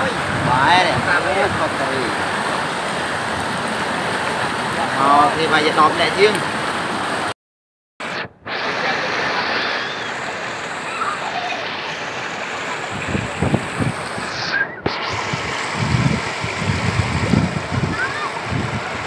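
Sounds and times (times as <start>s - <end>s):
wind rumbling on microphone: 0.0s - 4.8s, 12.8s - 19.0s
river rushing over rapids: 0.0s - 7.3s, 8.0s - 19.0s.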